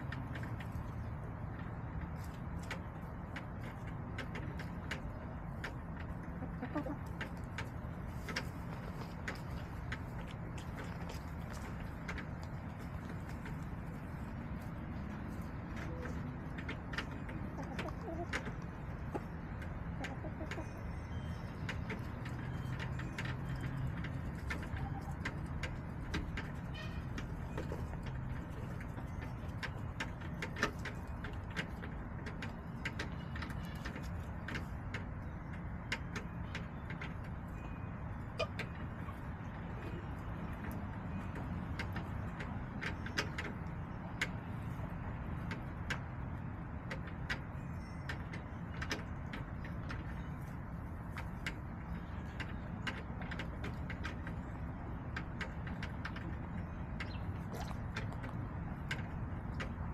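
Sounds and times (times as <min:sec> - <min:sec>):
hens calling softly: 0:04.6 - 0:31.4.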